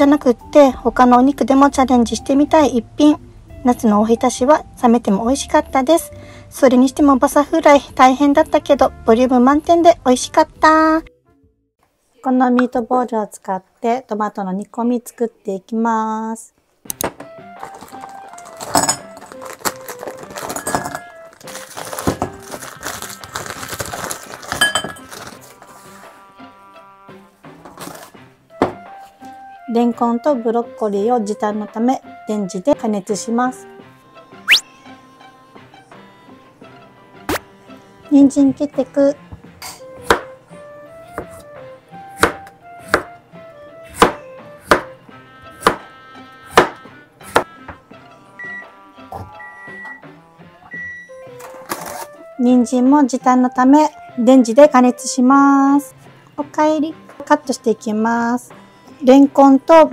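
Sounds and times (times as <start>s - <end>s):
light background music: 0.0s - 11.6s, 16.8s - 59.9s
frozen vegetables clattering in glass bowl: 17.6s - 25.6s
knife chopping carrot on board: 28.6s - 28.9s, 39.6s - 40.4s, 41.1s - 41.4s, 42.1s - 43.2s, 43.9s - 45.9s, 46.5s - 47.8s.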